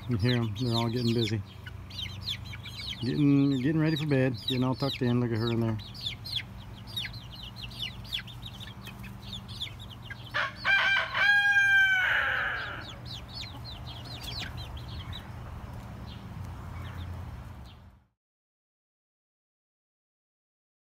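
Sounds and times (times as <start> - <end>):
chickens chirping: 0.0 - 18.0
rooster crowing: 10.3 - 13.1.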